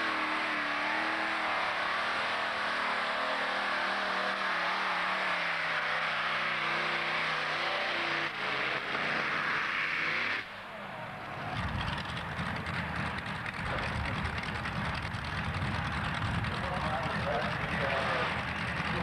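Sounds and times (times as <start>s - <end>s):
low rough pulsing engine rumble: 10.6s - 19.0s
tractor engine running flat out: 11.3s - 19.0s.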